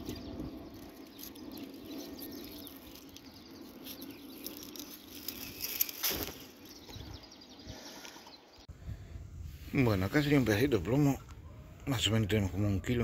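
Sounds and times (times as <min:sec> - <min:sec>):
leaves and stems rustling: 0:00.0 - 0:08.2.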